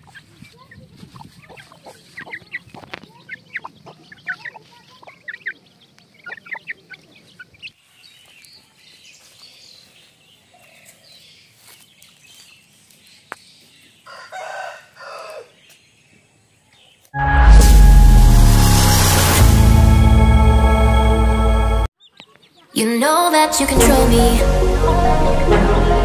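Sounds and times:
chicks peeping and clucking: 0:00.0 - 0:17.1.

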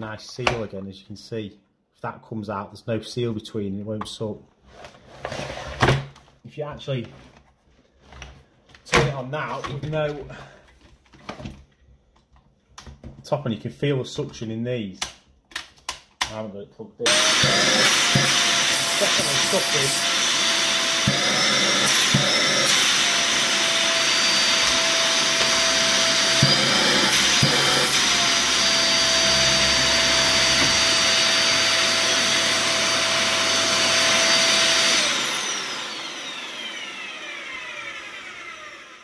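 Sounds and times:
vacuum cleaner motor whine: 0:17.1 - 0:39.0.

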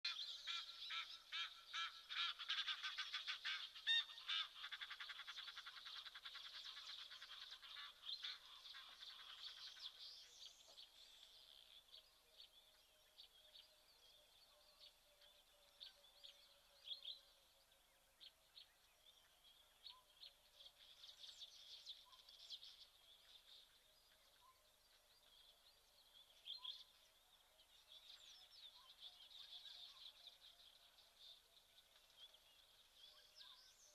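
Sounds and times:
guineafowl rattling cackle: 0:00.1 - 0:09.8.

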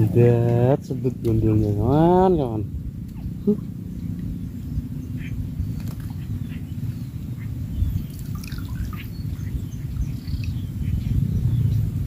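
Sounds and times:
wind rumble on microphone: 0:00.0 - 0:12.0
faint bird chirps: 0:03.1 - 0:12.0.

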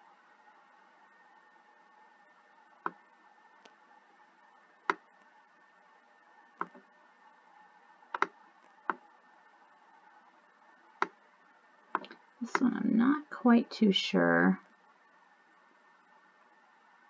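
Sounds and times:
faint steady hum: 0:00.0 - 0:17.0
mouse button clicking: 0:08.2 - 0:08.4.

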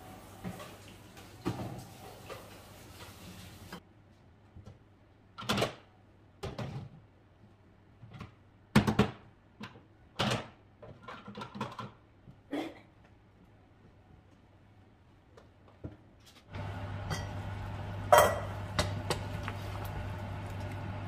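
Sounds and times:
kitchen utensils and cookware clunking: 0:17.0 - 0:17.4, 0:18.1 - 0:19.3.

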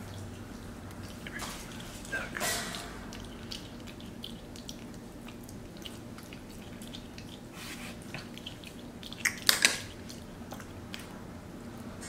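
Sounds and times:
monkey licking wet clicks: 0:00.0 - 0:11.1
low steady hum: 0:00.0 - 0:12.0.

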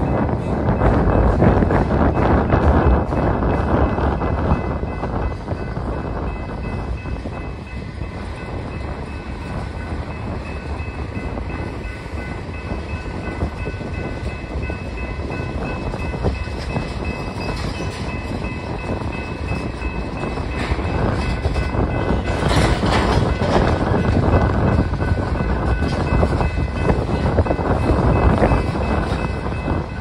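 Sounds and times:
train cars clanking and rattling: 0:00.0 - 0:30.0
train wheels rumbling on rails: 0:00.0 - 0:30.0.

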